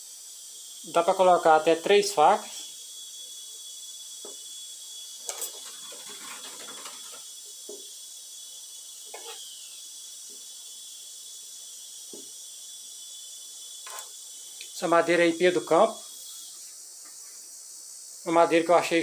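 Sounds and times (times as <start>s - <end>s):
insect chirring: 0.0s - 19.0s
steel scraping and tapping wood: 5.2s - 7.3s, 13.8s - 14.1s.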